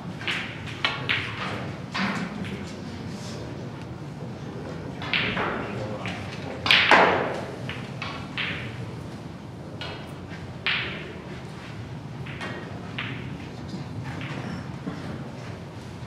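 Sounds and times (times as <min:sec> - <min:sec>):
sharp knocks echoing in hall: 0:00.0 - 0:02.7, 0:05.0 - 0:09.0, 0:09.8 - 0:11.3, 0:12.2 - 0:13.6.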